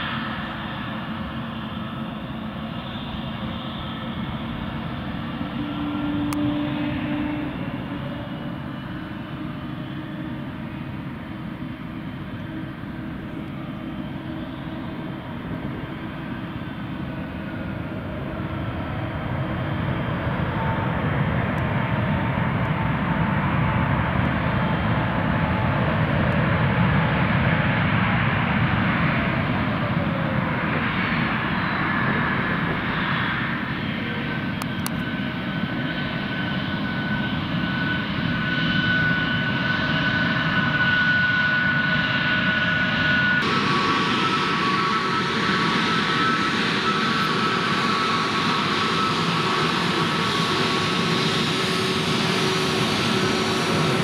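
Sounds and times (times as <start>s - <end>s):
falling whine: 0.0s - 25.8s, 42.9s - 54.0s
jet engine noise: 0.0s - 54.0s
steady high whine: 0.0s - 54.0s.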